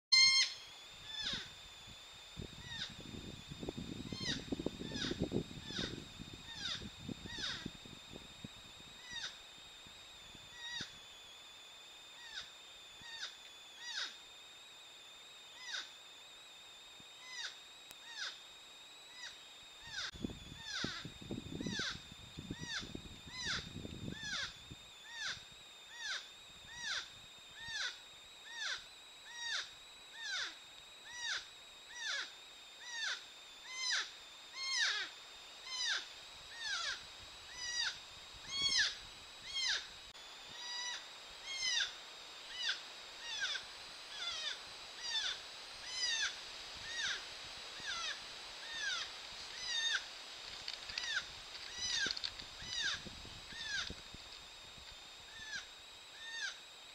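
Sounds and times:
porcupine high whining cries: 0.1 - 1.6, 2.6 - 3.0, 4.1 - 7.8, 9.0 - 9.4, 10.5 - 10.9, 12.2 - 14.2, 15.6 - 16.0, 17.2 - 18.4, 19.1 - 39.9, 40.5 - 50.1, 50.9 - 54.0, 55.3 - 56.6.

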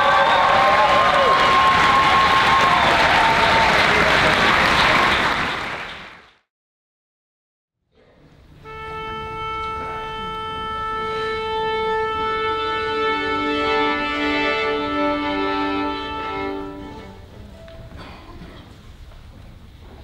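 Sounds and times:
orchestra sustained notes: 8.6 - 17.8.

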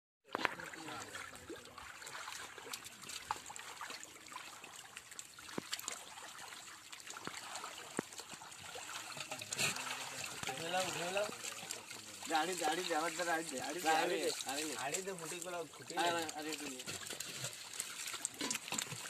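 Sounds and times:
muddy water sloshing: 0.3 - 19.0
small splashes and clicks: 0.3 - 19.0
loud splash: 5.6 - 15.4.

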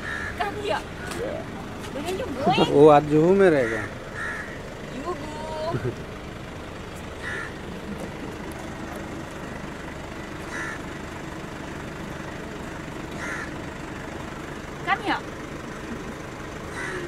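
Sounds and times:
crow cawing: 0.0 - 1.2, 3.5 - 6.0, 7.2 - 7.7, 10.3 - 11.5, 13.1 - 14.1, 16.6 - 17.0
street noise: 0.0 - 17.0.

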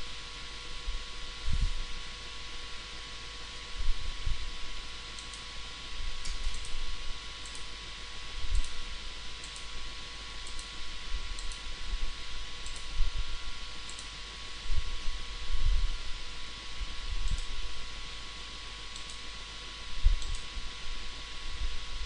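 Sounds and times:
recording hiss and hum: 0.0 - 22.0
computer mouse clicking: 5.2 - 5.5, 6.2 - 6.8, 7.4 - 7.7, 8.5 - 8.8, 9.4 - 9.7, 10.4 - 10.8, 11.4 - 11.7, 12.6 - 13.0, 13.8 - 14.2, 17.2 - 17.6, 18.9 - 19.2, 20.2 - 20.5.

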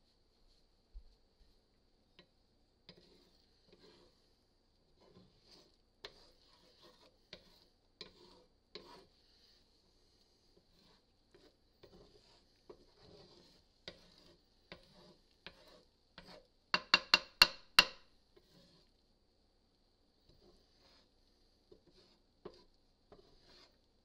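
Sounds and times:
spatula scraping skillet: 2.1 - 19.0, 20.2 - 24.0
wood knocking on iron pan: 16.8 - 18.1.

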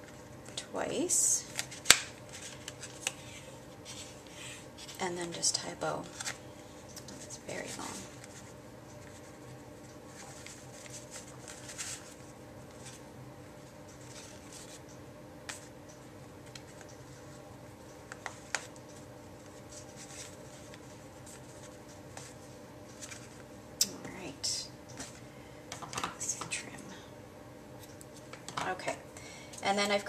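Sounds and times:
twine and paper rustling: 0.0 - 6.4, 7.0 - 13.0, 13.9 - 14.9, 18.1 - 23.5.

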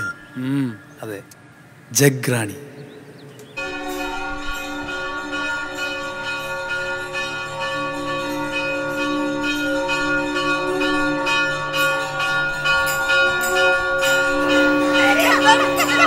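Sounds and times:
brass bells ringing: 3.6 - 16.0.

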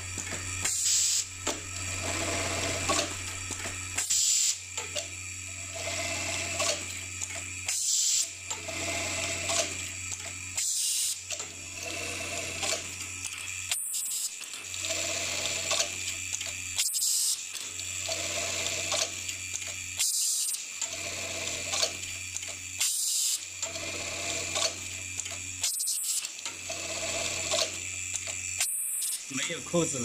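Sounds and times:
sewing machine motor hum: 0.0 - 30.0
short pneumatic hiss: 4.0 - 4.6.

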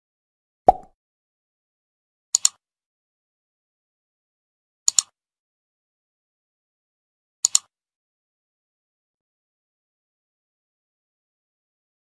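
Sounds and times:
mouse double clicks: 4.9 - 5.1, 7.4 - 7.7.

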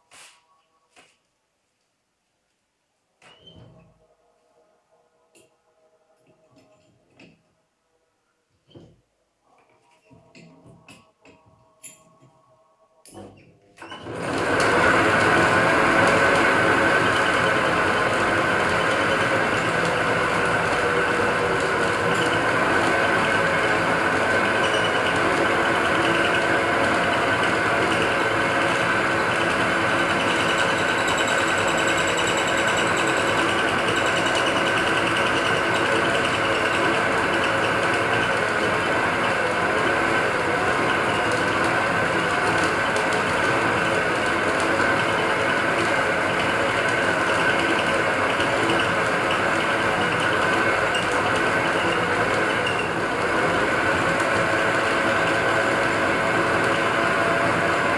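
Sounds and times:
metal lathe running: 14.0 - 57.9.

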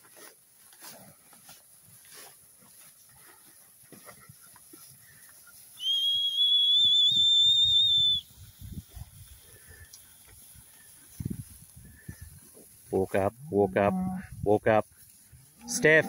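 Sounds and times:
long wavering whistle: 5.8 - 8.3.

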